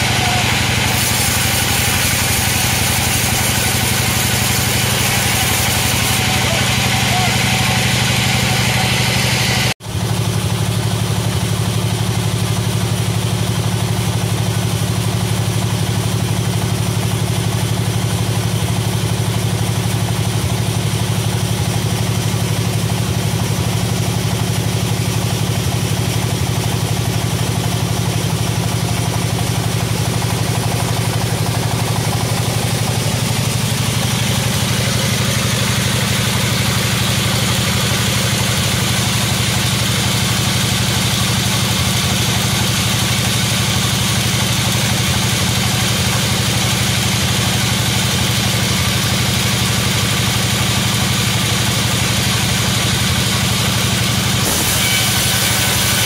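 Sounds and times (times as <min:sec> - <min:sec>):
saw blade cutting log: 0:00.0 - 0:09.8, 0:31.4 - 0:47.0, 0:52.7 - 0:56.0
sawmill drive humming: 0:00.0 - 0:09.8, 0:30.8 - 0:43.3, 0:54.0 - 0:56.0.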